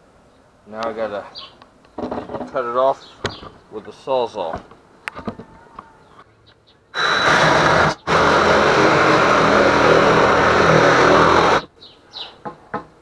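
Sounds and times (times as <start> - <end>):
reciprocating saw cutting wood: 7.0 - 11.7.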